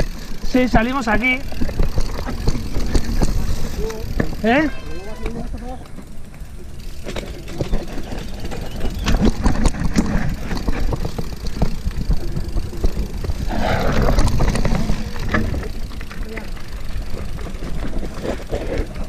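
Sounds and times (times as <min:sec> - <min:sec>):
bike brushing through ferns: 0:00.0 - 0:06.2, 0:06.8 - 0:19.0
bike rattling over bumps: 0:00.0 - 0:19.0
bike tyres and wind rumble: 0:00.0 - 0:19.0.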